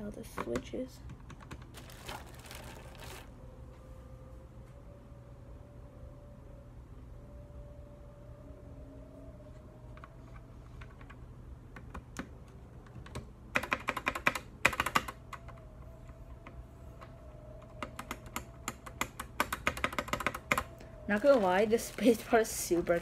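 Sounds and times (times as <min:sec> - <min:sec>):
mechanical keyboard typing: 0:13.0 - 0:15.5, 0:17.6 - 0:20.7.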